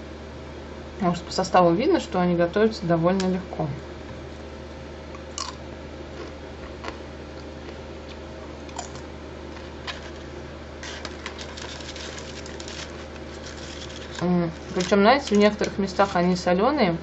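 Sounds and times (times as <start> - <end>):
steady low hum: 0.0 - 17.0
foil chip bag crinkling: 8.8 - 16.4
potato chips crackling: 9.6 - 16.4.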